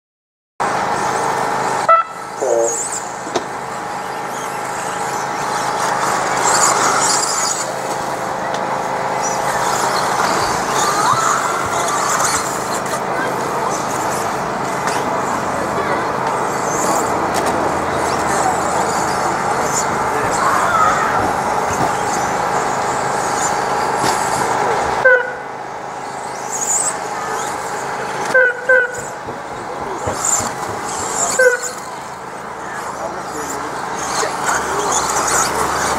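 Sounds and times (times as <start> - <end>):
radio-controlled trucks whining: 0.6 - 35.9
outdoor din: 1.9 - 15.1, 26.0 - 35.9.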